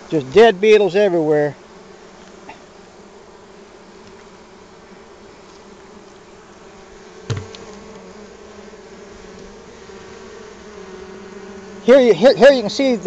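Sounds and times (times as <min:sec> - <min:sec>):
honeybees buzzing: 0:00.0 - 0:13.0
knock on wooden hive top: 0:07.2 - 0:07.8.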